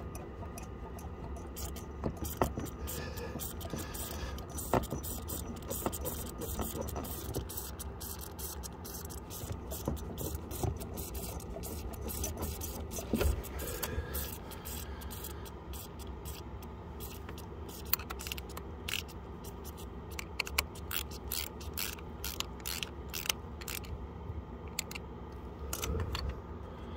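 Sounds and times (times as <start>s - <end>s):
air spitting from bleed screw: 1.5s - 16.4s.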